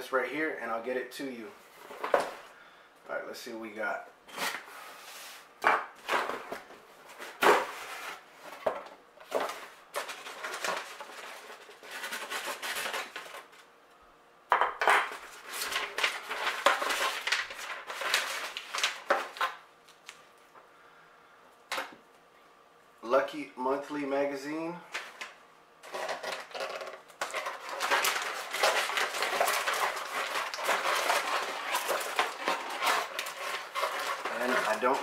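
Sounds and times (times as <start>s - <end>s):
paper packaging rustling: 6.0s - 13.7s, 15.1s - 20.1s, 24.9s - 35.0s.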